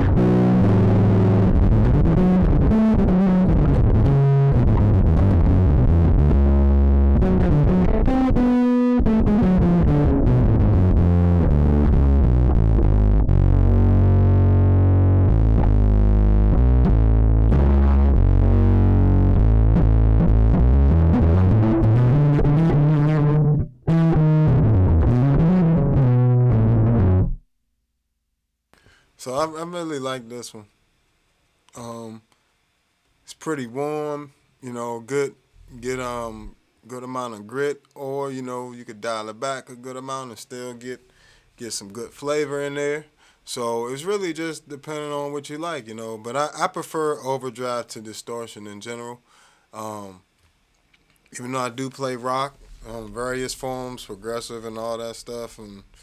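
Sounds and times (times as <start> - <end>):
overdriven electric bass line: 0.0 - 27.4, 52.5 - 56.0.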